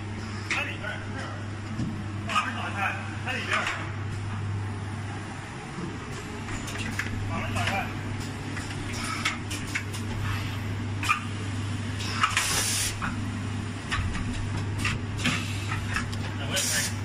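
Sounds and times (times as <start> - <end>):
sealing machine humming: 11.2 - 13.8
air hiss: 12.2 - 13.0.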